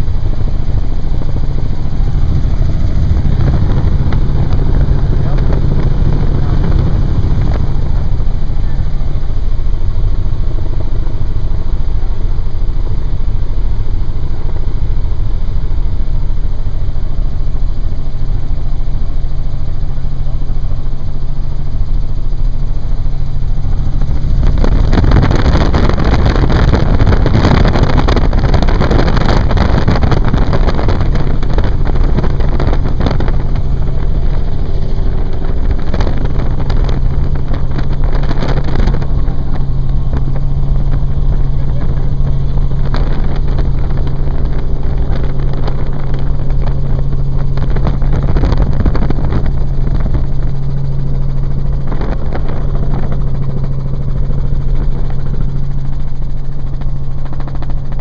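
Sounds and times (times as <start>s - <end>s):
loud rushing noise: 0.0s - 11.5s, 23.4s - 56.2s
helicopter engine and rotor droning: 0.0s - 58.0s.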